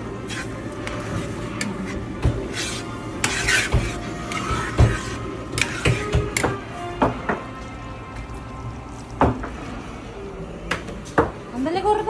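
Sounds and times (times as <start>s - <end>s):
metal spoon scraping pan: 0.3s - 6.6s.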